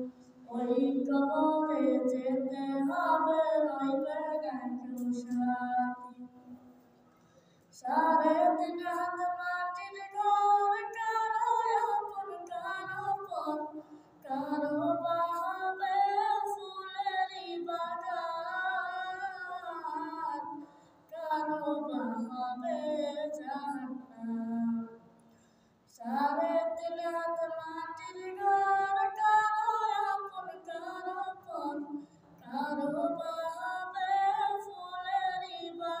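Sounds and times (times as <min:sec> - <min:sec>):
boy singing unaccompanied: 0:00.0 - 0:06.4, 0:07.8 - 0:24.9, 0:25.9 - 0:36.0.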